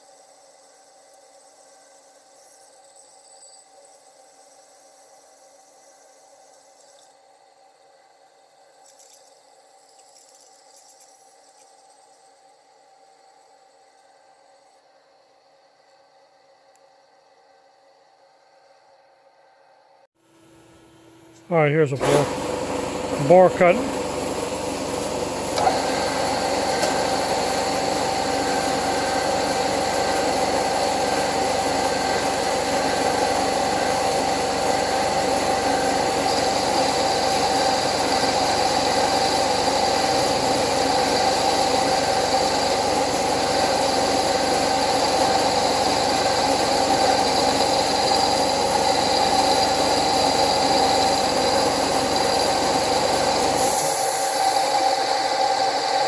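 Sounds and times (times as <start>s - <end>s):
milling machine whine cutting metal: 0.0s - 10.4s, 21.7s - 56.0s.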